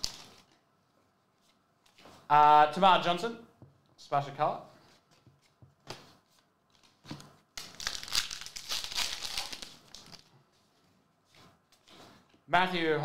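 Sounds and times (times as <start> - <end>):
foil wrapper crinkling: 7.6 - 10.3.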